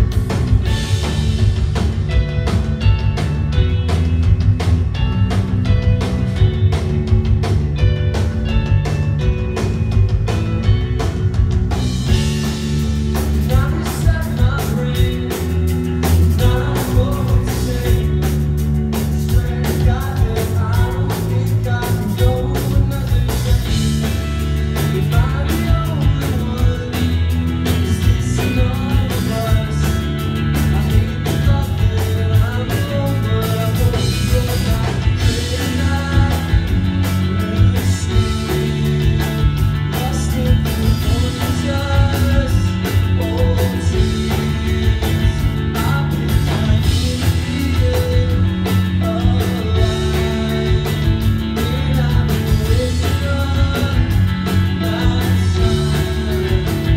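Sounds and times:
rock band playing: 0:00.0 - 0:56.9
man singing: 0:12.1 - 0:56.9.

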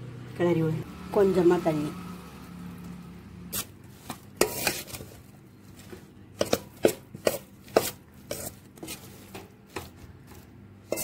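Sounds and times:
spoon scraping a steel bowl: 0:03.5 - 0:10.0.

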